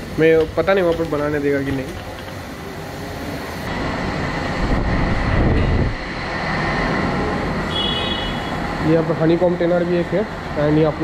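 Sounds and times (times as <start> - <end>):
vehicle rushing and rumbling: 3.6 - 7.7.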